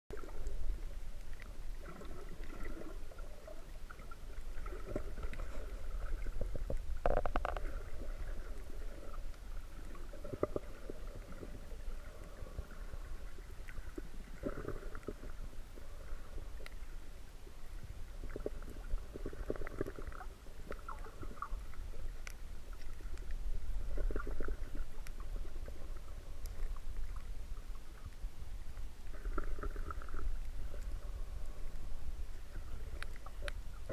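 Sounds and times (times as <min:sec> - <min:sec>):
underwater rumble of moving water: 0:00.1 - 0:33.9
water gurgling: 0:00.1 - 0:33.9
faint clicks: 0:04.3 - 0:08.1, 0:16.6 - 0:16.9, 0:18.3 - 0:25.8, 0:26.4 - 0:33.7.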